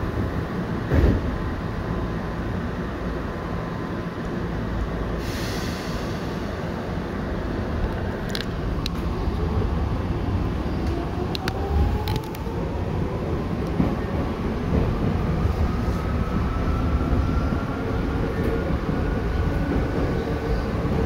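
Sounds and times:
train rumble: 0.0s - 21.0s
brief air hiss: 5.2s - 6.5s.

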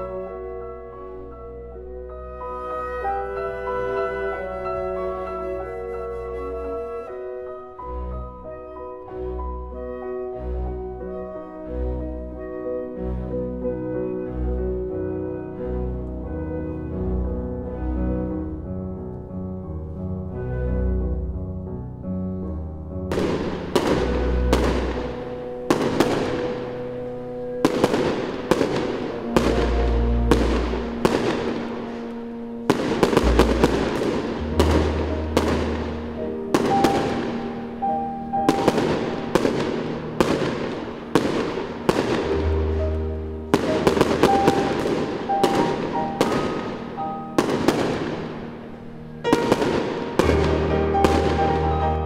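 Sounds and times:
piano music: 0.0s - 52.0s
fireworks bursting with bangs: 23.1s - 27.0s, 27.6s - 52.0s.

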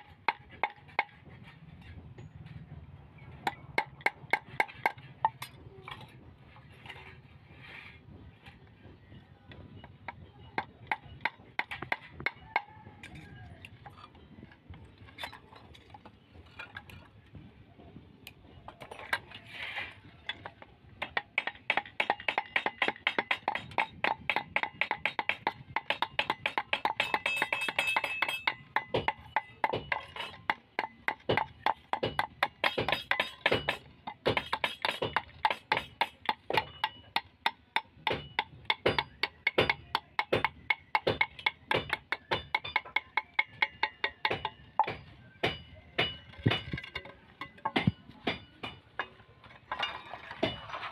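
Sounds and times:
small hammer tapping metal: 21.0s - 49.2s.

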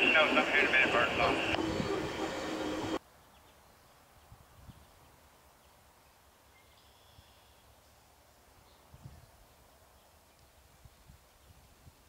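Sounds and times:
freight train passing: 0.0s - 3.0s
faint bird chirps: 6.5s - 7.7s.

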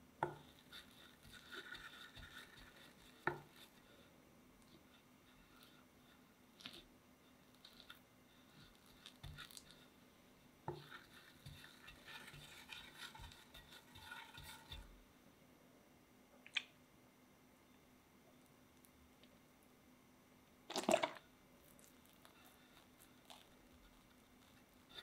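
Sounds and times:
spatula scraping frosting: 0.2s - 10.0s, 10.7s - 15.0s, 21.6s - 25.0s.

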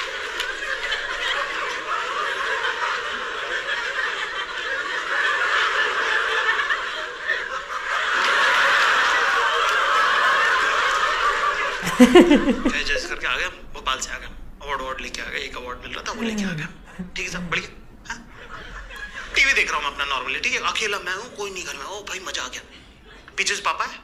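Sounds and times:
audience laughing: 0.0s - 13.7s, 16.1s - 20.4s.

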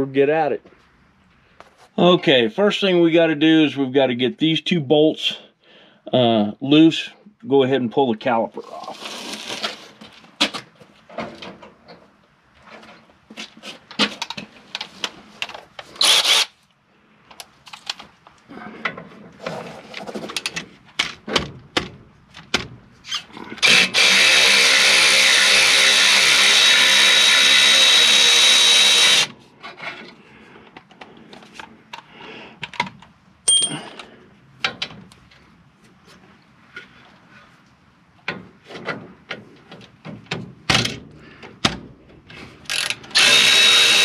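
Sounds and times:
handheld power tool running: 16.0s - 16.5s, 23.6s - 29.3s, 42.7s - 44.0s
metal tools clinking: 33.5s - 34.1s.

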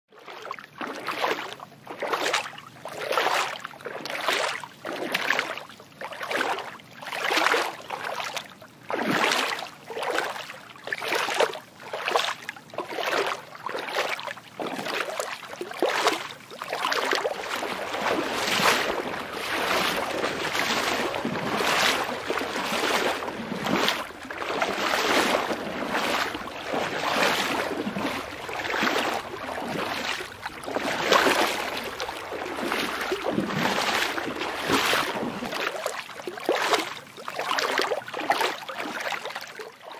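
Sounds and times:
rhythmic whooshing of water: 0.2s - 39.9s.

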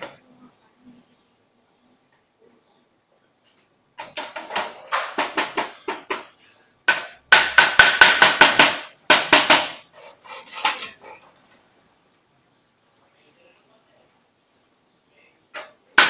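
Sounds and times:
hammer striking sheet metal: 6.9s - 9.8s.

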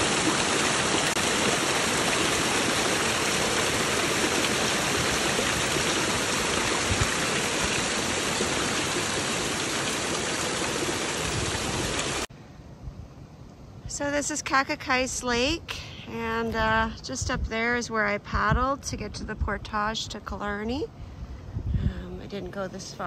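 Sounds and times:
creek water rushing and splashing: 0.0s - 12.3s.

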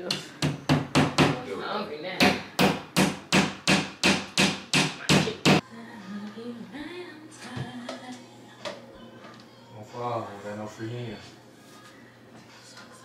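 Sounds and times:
hammer tapping a nail: 2.2s - 5.6s.

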